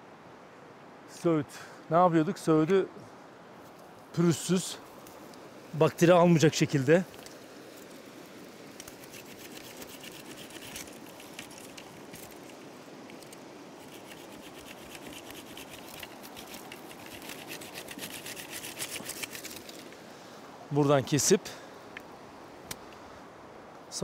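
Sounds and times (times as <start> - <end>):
stream rushing: 0.0 - 24.0
knife scratching willow stem: 8.7 - 19.9.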